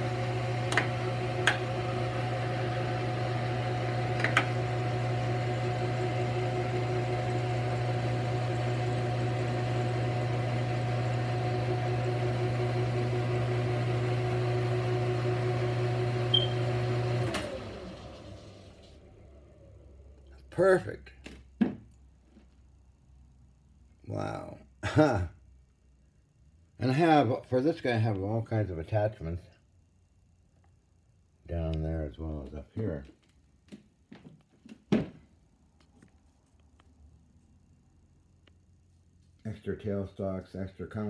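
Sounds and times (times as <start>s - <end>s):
metal lathe humming: 0.0s - 19.3s.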